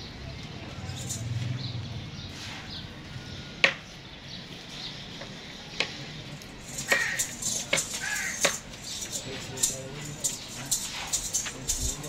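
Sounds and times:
sharp clicks and clinks: 0:00.9 - 0:01.4, 0:06.4 - 0:12.0.

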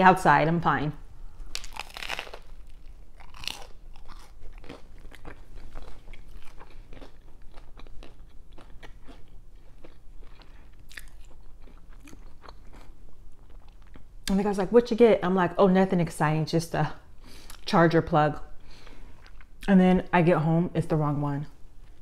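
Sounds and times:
crunch of toasted bread: 0:01.4 - 0:14.0
crunchy chewing: 0:01.4 - 0:14.1.

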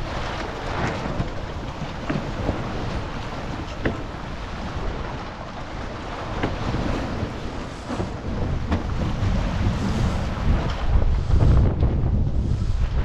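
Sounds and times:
water rushing past hull: 0:00.0 - 0:13.0
waves slapping: 0:00.0 - 0:13.0
wind buffeting microphone: 0:00.0 - 0:13.0.

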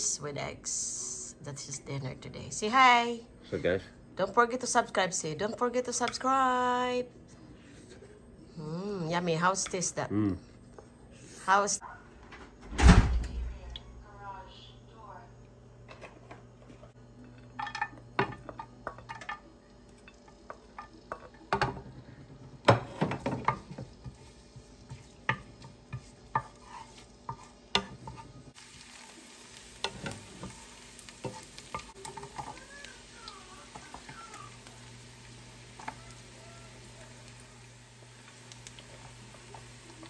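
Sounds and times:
garlic sizzling in oil: 0:17.6 - 0:40.0
spatula scraping a pan: 0:24.0 - 0:28.6, 0:29.8 - 0:32.6.

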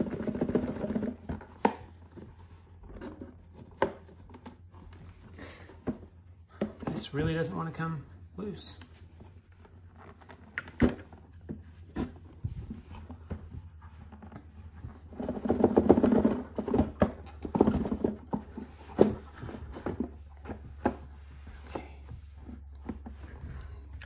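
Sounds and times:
cardboard rubbing and scraping: 0:08.9 - 0:23.4.

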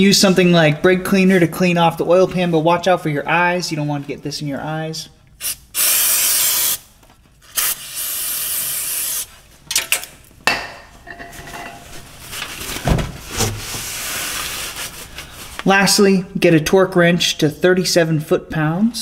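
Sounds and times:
aerosol spray hissing: 0:05.4 - 0:06.8, 0:07.6 - 0:09.3
rustling: 0:11.2 - 0:16.0.

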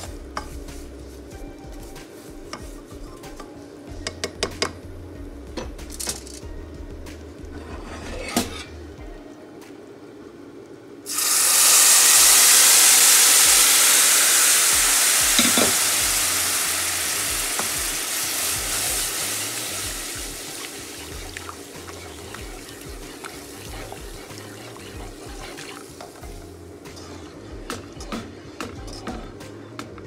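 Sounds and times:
spatula scraping pan: 0:07.6 - 0:08.8, 0:19.9 - 0:27.4
water sizzling in hot pan: 0:11.1 - 0:26.7.

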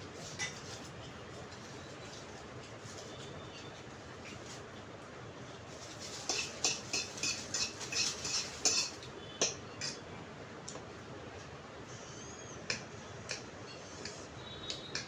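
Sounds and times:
cutlery clinking on a plate: 0:06.2 - 0:10.0.

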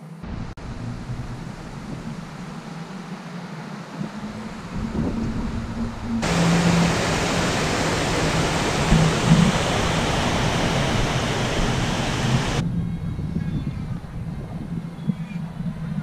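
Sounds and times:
low steady hum: 0:00.1 - 0:16.0
rushing water roar: 0:00.2 - 0:12.6.

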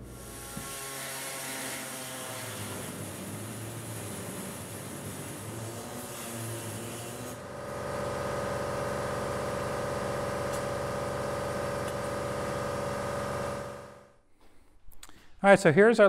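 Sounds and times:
air-powered metal cutter hissing: 0:00.0 - 0:07.4
steady mechanical drone: 0:07.3 - 0:14.1.

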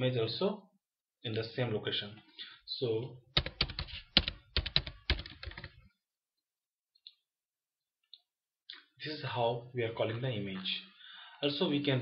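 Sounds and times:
typing on keyboard: 0:03.4 - 0:05.8.

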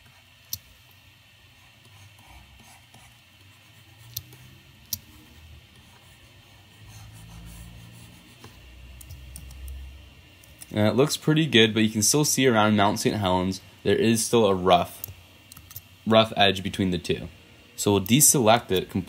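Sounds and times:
computer mouse clicks: 0:04.1 - 0:05.1, 0:09.0 - 0:09.8.

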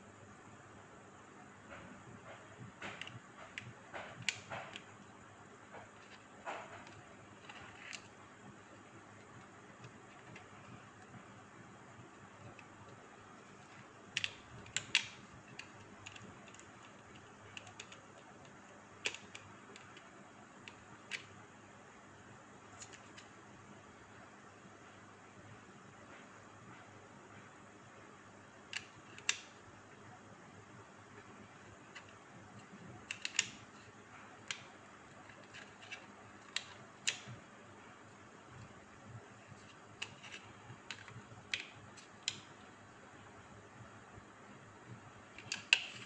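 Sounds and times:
small plastic clicks: 0:02.7 - 0:05.0, 0:12.0 - 0:21.4, 0:22.8 - 0:23.4, 0:28.6 - 0:29.6, 0:31.2 - 0:37.4, 0:39.6 - 0:42.7, 0:45.3 - 0:46.0
hard plastic clicks: 0:31.9 - 0:33.6, 0:45.4 - 0:46.0.

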